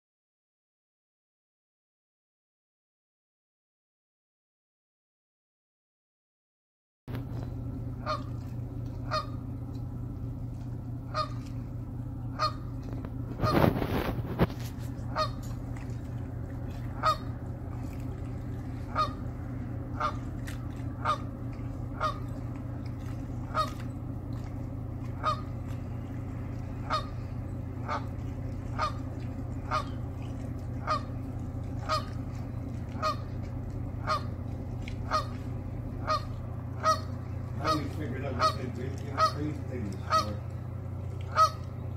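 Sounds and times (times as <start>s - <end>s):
geese honking: 7.1s - 41.9s
steady low drone: 7.1s - 41.9s.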